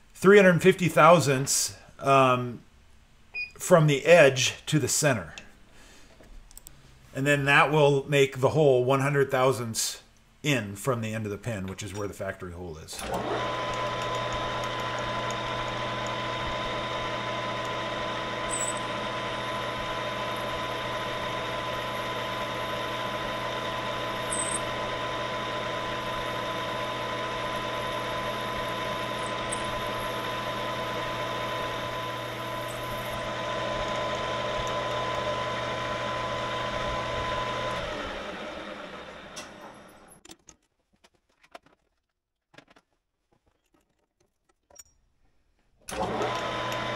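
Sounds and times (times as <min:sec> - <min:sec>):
metal lathe running: 0:13.0 - 0:40.0, 0:45.9 - 0:46.9
lathe spinning down: 0:13.0 - 0:40.2, 0:45.9 - 0:46.9
thin high whine: 0:18.5 - 0:19.0.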